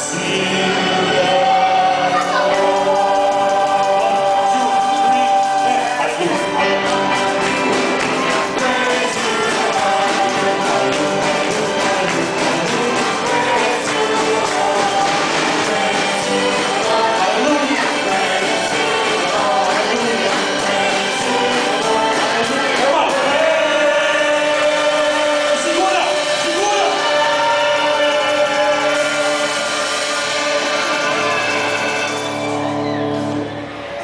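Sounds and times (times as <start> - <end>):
people singing: 0.0 - 33.4
guitars: 0.0 - 34.0
violins: 0.0 - 34.0.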